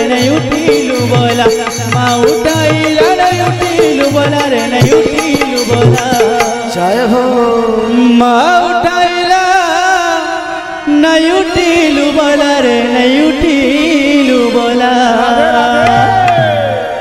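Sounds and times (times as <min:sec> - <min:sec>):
drum beating quick rhythm: 0:00.0 - 0:06.7, 0:15.8 - 0:16.7
man singing: 0:00.0 - 0:17.0.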